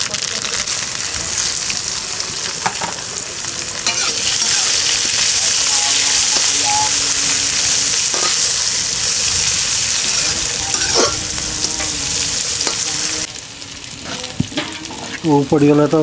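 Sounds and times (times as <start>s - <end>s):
spices sizzling in oil: 0.0s - 16.0s
ladle scraping pan: 10.1s - 11.3s.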